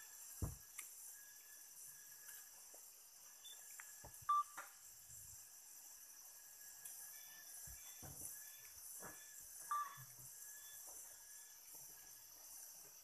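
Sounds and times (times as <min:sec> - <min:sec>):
forest insects droning: 0:00.0 - 0:13.0
high beep-like chirp: 0:04.3 - 0:04.5, 0:09.7 - 0:10.0.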